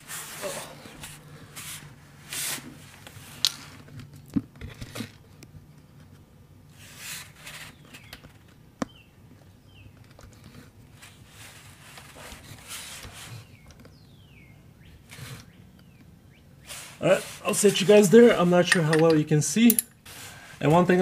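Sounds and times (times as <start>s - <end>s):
rustling and scuffing on concrete: 0.0s - 4.1s, 10.3s - 14.2s, 16.6s - 21.0s
sharp clicks and knocks of tools: 18.7s - 19.9s.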